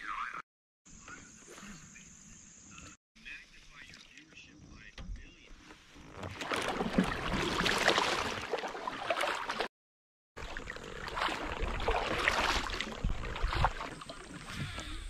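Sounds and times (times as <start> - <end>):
kayak paddle splashing in water: 6.2 - 9.7, 10.4 - 15.0.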